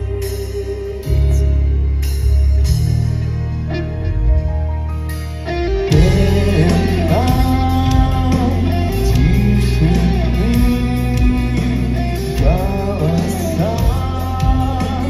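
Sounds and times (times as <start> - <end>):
man singing: 0.0 - 2.4, 5.8 - 15.0
metal band playing: 0.0 - 15.0.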